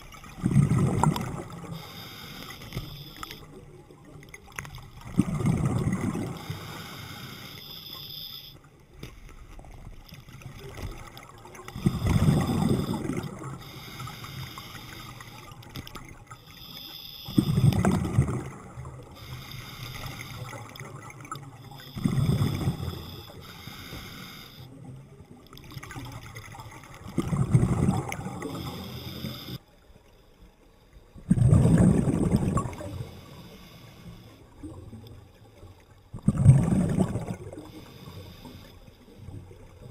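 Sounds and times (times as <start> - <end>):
exhaled bubbles rushing: 0.0 - 1.8, 3.4 - 6.6, 10.3 - 13.7, 17.3 - 19.2, 20.0 - 23.4, 25.5 - 28.9, 31.2 - 33.1, 36.1 - 37.8
regulator hiss: 1.6 - 3.5, 6.4 - 8.6, 11.8 - 15.5, 16.4 - 17.7, 19.1 - 20.6, 21.6 - 24.7, 28.4 - 29.6.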